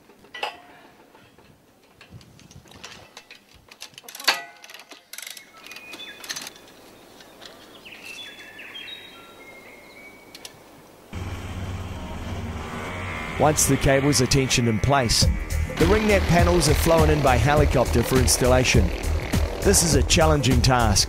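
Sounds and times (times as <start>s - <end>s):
metallic clicks and clanks: 0.1s - 6.7s.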